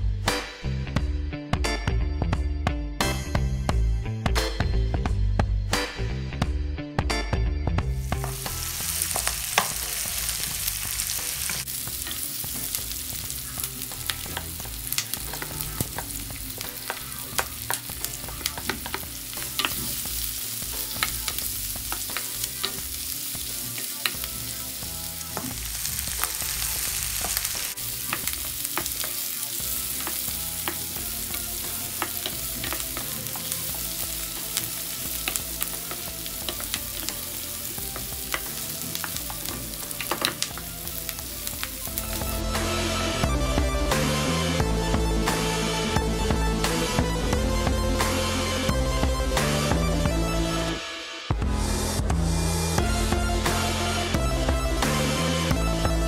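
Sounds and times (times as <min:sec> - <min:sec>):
food sizzling in a pan: 0:08.0 - 0:43.3.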